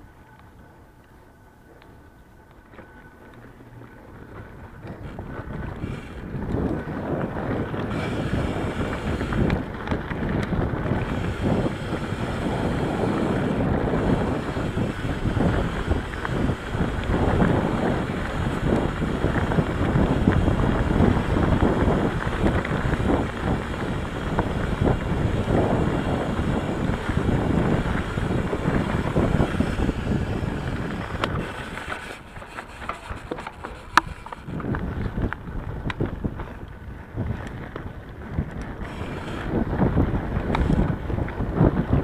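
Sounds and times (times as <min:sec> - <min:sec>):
bike clattering: 0:02.6 - 0:42.0
wind on microphone: 0:03.6 - 0:42.0.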